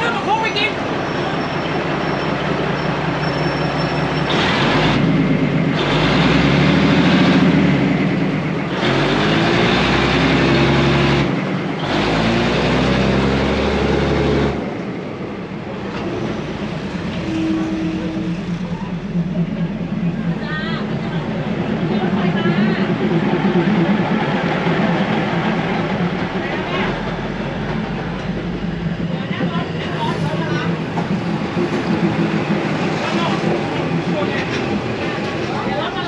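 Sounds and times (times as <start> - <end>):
diesel railcar engine droning: 0.0 - 36.0.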